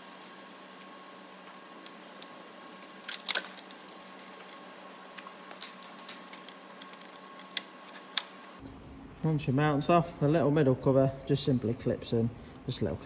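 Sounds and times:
faint steady hum: 0.0s - 13.0s
metal parts clinking and rattling: 2.0s - 4.6s, 5.2s - 7.6s.

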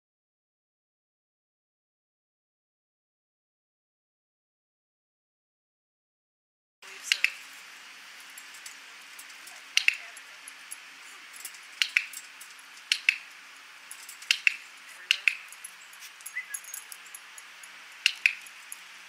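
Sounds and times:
dog-training clicker clicks: 7.1s - 7.4s, 9.7s - 10.3s, 11.4s - 12.2s, 12.8s - 13.3s, 13.9s - 18.8s.

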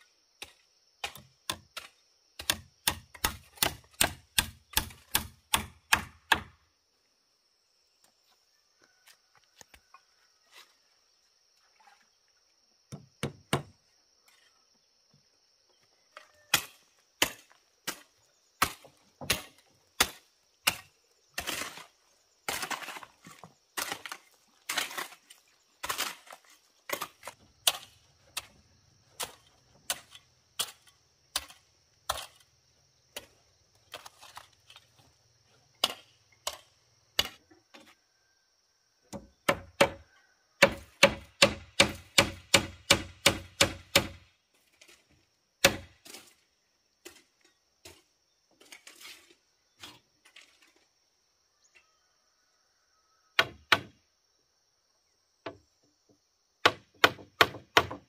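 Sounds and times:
hoe chopping into stony dirt: 0.4s - 6.6s, 16.5s - 28.5s, 35.8s - 37.4s, 40.6s - 44.2s, 45.6s - 46.4s
hammer striking nails into wood: 2.4s - 6.6s, 12.9s - 13.7s, 39.1s - 40.0s, 40.6s - 44.2s, 56.6s - 58.0s.

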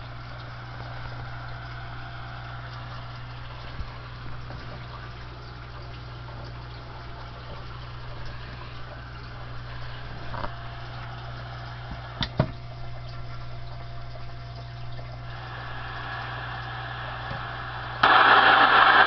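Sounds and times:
constant low hum: 0.0s - 19.0s
radio static hiss: 15.3s - 19.0s.

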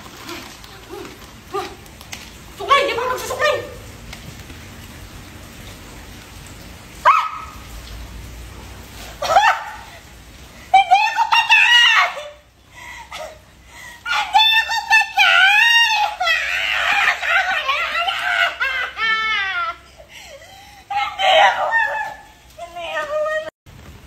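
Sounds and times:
woman screaming in fright: 9.2s - 10.0s, 10.8s - 12.4s, 14.0s - 19.9s, 20.9s - 22.4s.

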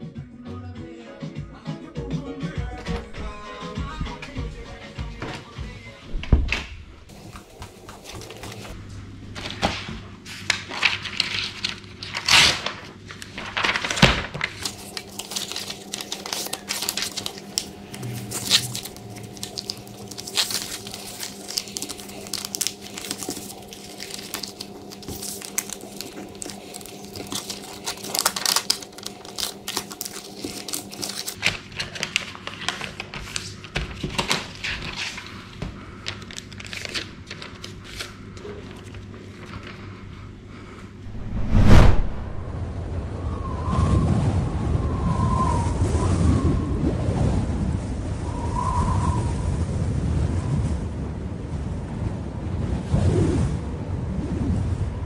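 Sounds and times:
paper rustling and crinkling: 7.1s - 39.9s
low steady hum: 12.7s - 31.4s, 39.4s - 44.9s.

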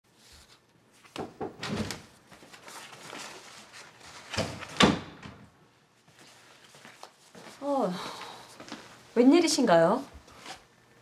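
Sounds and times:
door closing with a thud: 1.2s - 2.1s, 4.3s - 5.4s.

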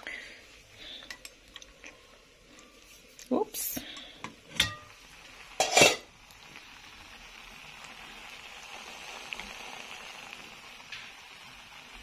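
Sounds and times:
food sizzling in pot: 0.0s - 12.0s
lid clattering: 4.5s - 4.9s, 5.6s - 6.1s
pot lid clinking: 4.5s - 4.9s, 5.6s - 6.1s.

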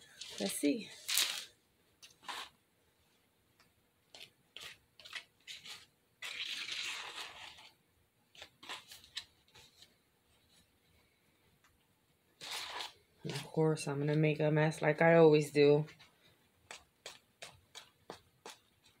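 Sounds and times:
metal spoon scraping plastic tub: 2.0s - 2.6s, 12.4s - 13.6s.

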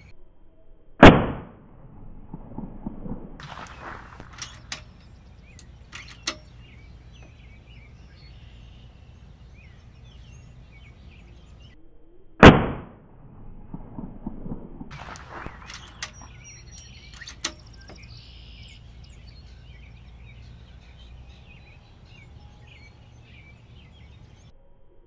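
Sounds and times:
air rifle shot: 1.0s - 1.6s, 3.4s - 5.1s, 12.4s - 13.0s, 14.9s - 18.1s
handling clicks: 3.4s - 7.4s, 14.9s - 18.3s
faint bird chirps: 3.5s - 12.3s, 15.0s - 25.0s.

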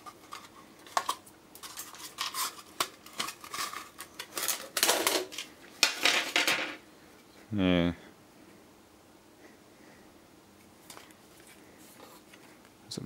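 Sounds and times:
plastic scraping rustles: 0.0s - 6.4s.

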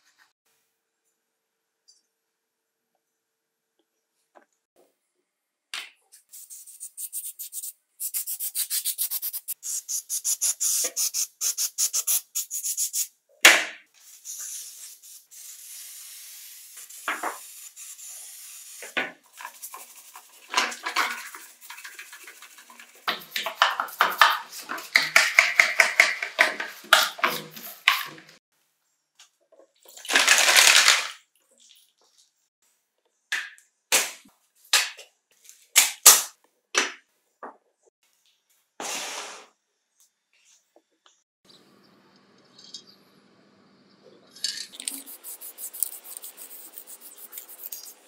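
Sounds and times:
aerosol spray hissing: 6.3s - 13.1s, 14.0s - 20.5s, 44.8s - 48.0s.

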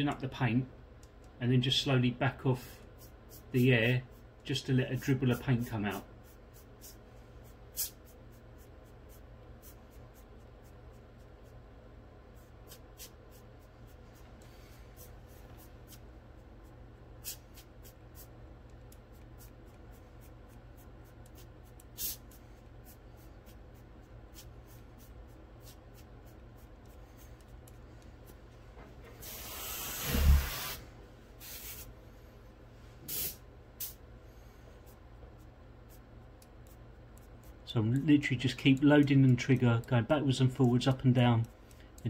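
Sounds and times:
airbrush spitting bursts of air: 7.7s - 8.1s, 21.9s - 22.4s, 29.2s - 30.8s, 31.4s - 31.9s, 33.1s - 34.0s
loud hiss of air: 29.2s - 31.9s, 33.0s - 34.0s.

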